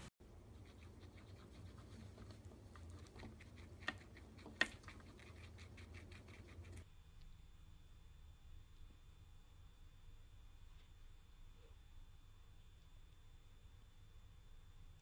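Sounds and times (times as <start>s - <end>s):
guinea pigs chewing carrot: 0.2s - 6.9s.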